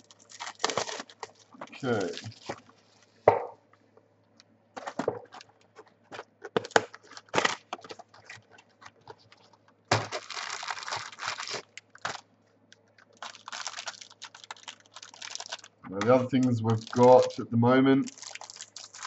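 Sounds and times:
card packaging tearing: 0.0 - 2.6, 6.1 - 12.2, 13.0 - 17.4, 18.0 - 19.0
packaging crinkling: 0.0 - 3.1, 4.8 - 17.4, 18.0 - 19.0.

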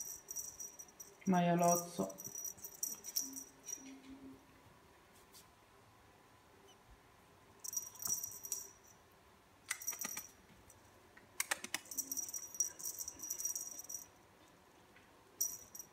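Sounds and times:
cat toy jingling: 0.0 - 3.9, 7.6 - 8.9, 11.8 - 14.1.

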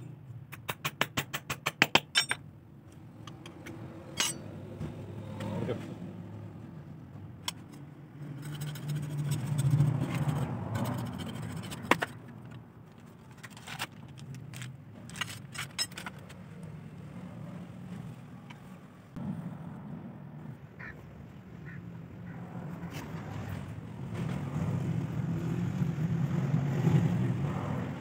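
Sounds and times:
metal tools clinking and scraping: 2.1 - 2.4, 3.2 - 4.6, 7.5 - 16.4
low hum: 17.0 - 24.4.

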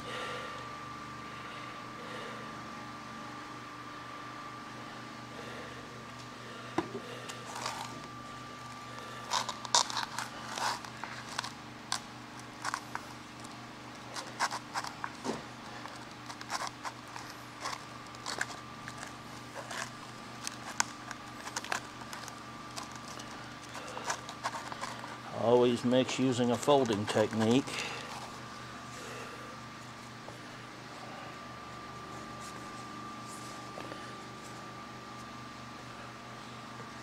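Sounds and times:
steady background hum: 0.0 - 37.0
plastic spreader scraping filler: 14.1 - 25.5.

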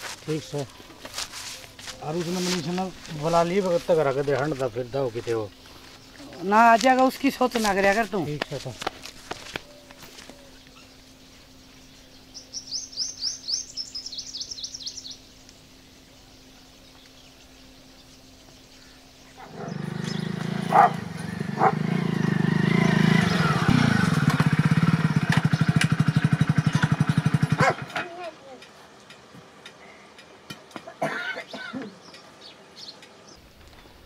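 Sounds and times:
bird chirping: 9.6 - 23.7
motorcycle engine running: 19.4 - 28.2.

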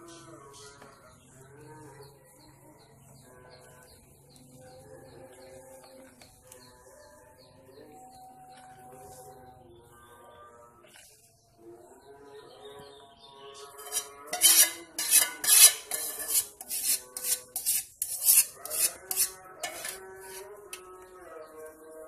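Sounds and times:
spatula scraping a metal pot: 13.6 - 21.1.

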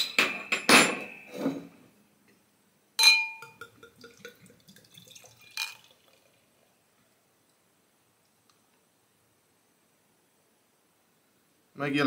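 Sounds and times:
glass clink: 3.0 - 4.4, 5.4 - 5.9
beer pouring into glass: 3.4 - 7.0.

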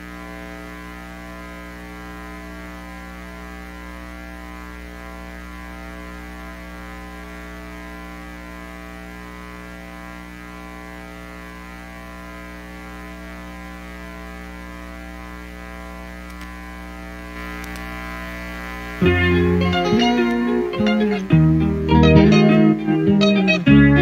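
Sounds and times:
electrical hum and buzz: 0.0 - 24.0
faint clicks: 16.2 - 16.6, 17.4 - 17.9.

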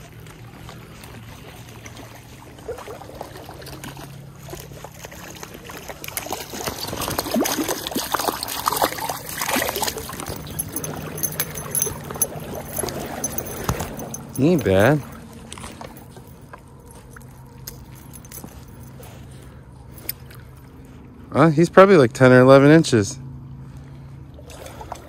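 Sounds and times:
fish splashing in water: 0.0 - 14.3, 23.8 - 25.0.

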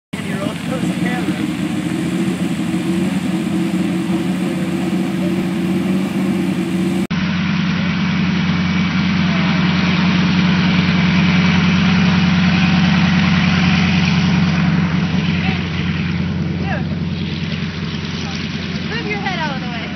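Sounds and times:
helicopter engine and rotor drone: 0.1 - 19.9.

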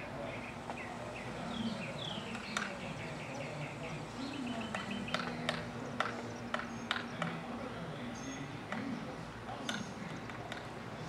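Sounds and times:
woodpecker tapping on bark: 4.5 - 7.4.

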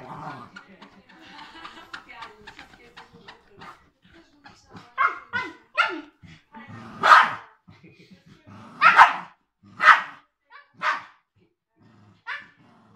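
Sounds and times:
dogs play-barking: 4.8 - 7.5, 8.8 - 10.2, 10.8 - 11.1.

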